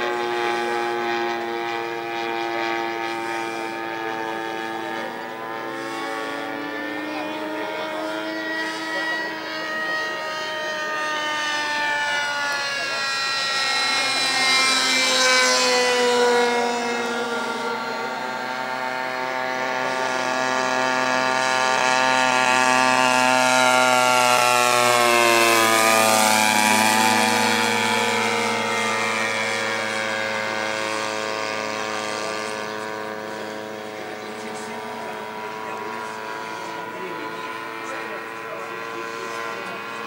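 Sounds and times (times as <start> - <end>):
model plane engine buzzing: 0.0 - 40.0.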